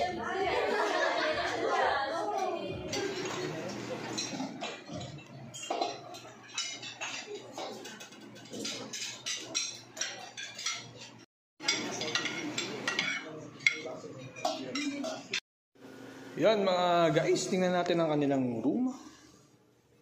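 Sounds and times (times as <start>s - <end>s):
people talking: 0.0s - 4.1s, 16.4s - 19.1s
serving utensils clinking on steel dishes: 2.9s - 15.4s.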